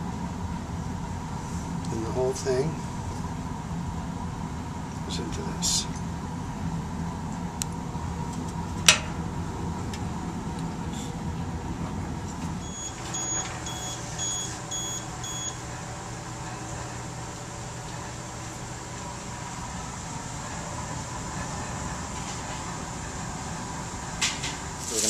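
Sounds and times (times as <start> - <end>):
equipment hum: 0.0 - 25.0
short electronic beeps: 12.6 - 15.6.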